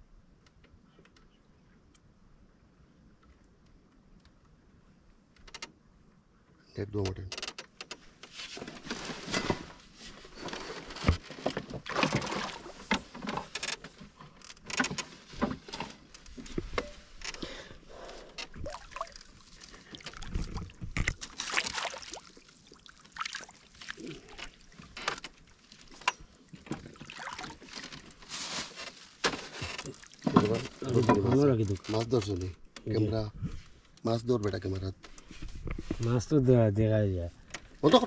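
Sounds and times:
fish splashing in water: 0:18.6 - 0:20.3, 0:21.3 - 0:24.8, 0:27.0 - 0:27.7.

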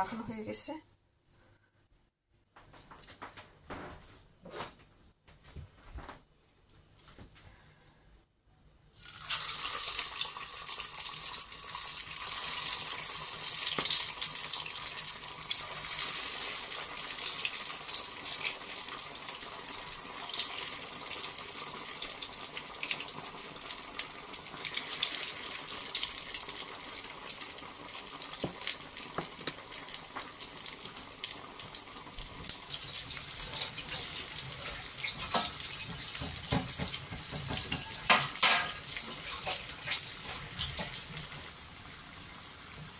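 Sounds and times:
food sizzling in hot oil: 0:09.0 - 0:42.9.

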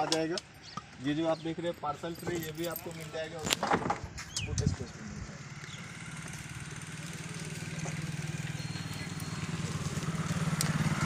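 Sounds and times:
engine running with low pulse: 0:04.9 - 0:11.0.

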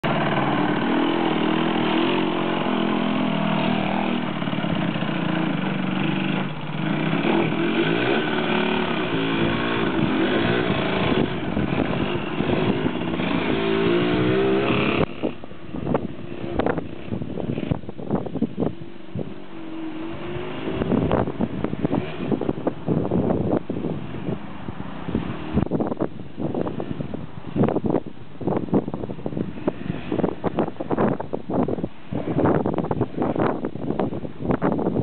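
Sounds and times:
moped engine revving: 0:00.0 - 0:24.4.

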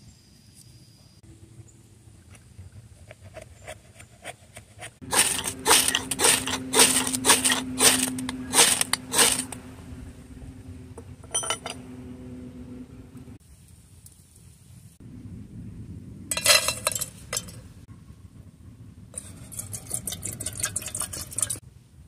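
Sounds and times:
ferro rod scraped with knife: 0:03.0 - 0:09.6.

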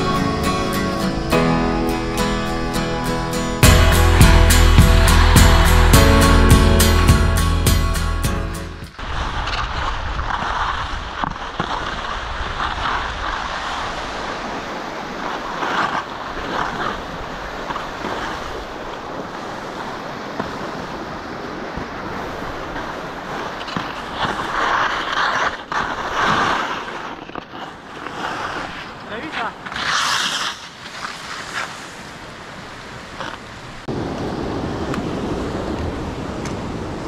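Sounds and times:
stream rushing over rocks: 0:12.3 - 0:24.6.

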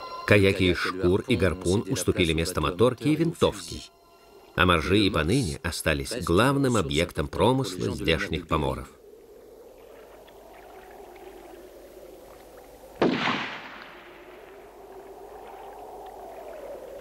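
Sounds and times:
faint steady background: 0:00.0 - 0:17.0
rifle shot: 0:13.0 - 0:14.4.

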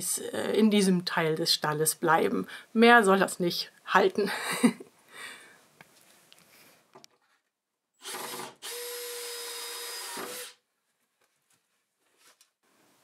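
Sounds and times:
power drill whining: 0:08.0 - 0:10.6.

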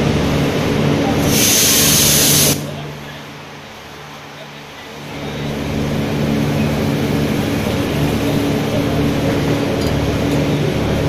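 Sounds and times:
steady low hum: 0:00.0 - 0:11.0
train wheels rolling on rails: 0:05.0 - 0:11.0.

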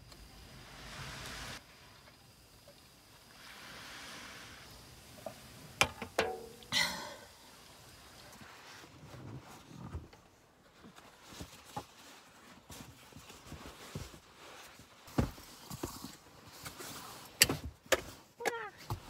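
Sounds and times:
rustling and handling noises: 0:08.2 - 0:19.0.

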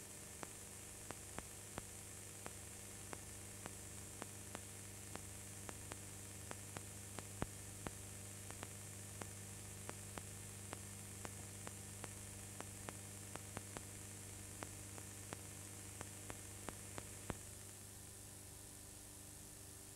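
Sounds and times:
low mains hum: 0:00.0 - 0:19.9.

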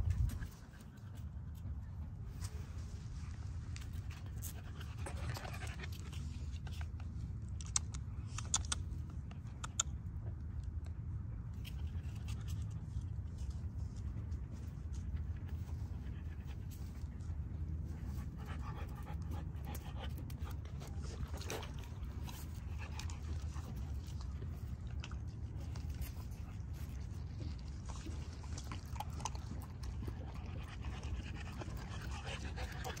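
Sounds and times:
low rumble: 0:00.0 - 0:08.2
kibble clicks and crunches: 0:03.8 - 0:10.0, 0:18.9 - 0:33.0
puppy panting: 0:15.0 - 0:33.0.

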